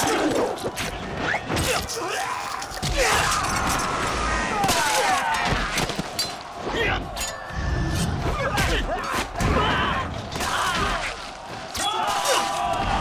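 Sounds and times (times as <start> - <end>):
men shouting and yelling: 1.6 - 13.0
clashes and thuds of fighting: 2.8 - 7.2, 8.0 - 13.0.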